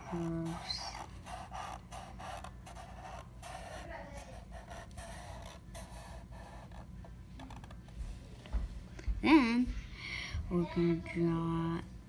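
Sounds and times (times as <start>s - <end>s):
marker scratching on paper: 0.0s - 8.1s.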